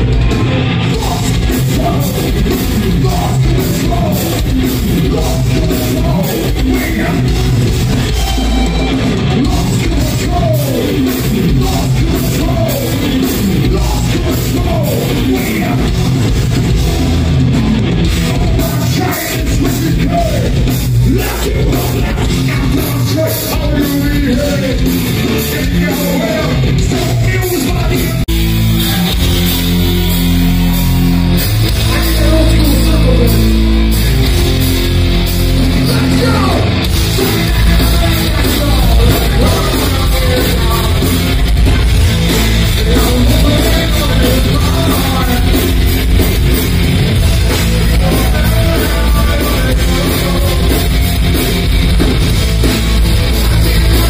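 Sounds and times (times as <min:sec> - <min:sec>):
live heavy rock band: 0:00.0 - 0:54.0.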